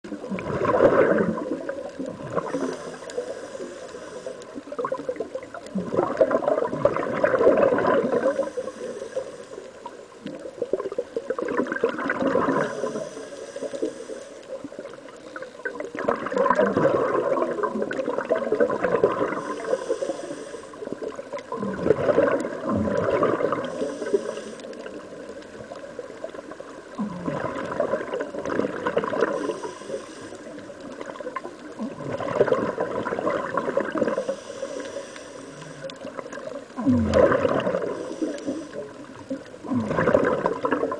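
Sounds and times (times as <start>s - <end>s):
exhaled air bubbles underwater: 0.0s - 40.9s
regulator inhale hiss: 2.3s - 5.6s, 8.1s - 10.4s, 12.5s - 14.9s, 19.2s - 21.4s, 23.5s - 25.2s, 29.1s - 31.1s, 34.0s - 36.4s, 37.6s - 39.4s.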